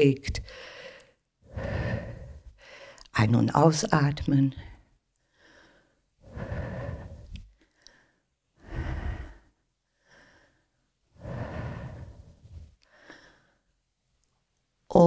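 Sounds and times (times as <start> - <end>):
woman breathing deeply: 0.4 - 3.1, 4.6 - 13.7.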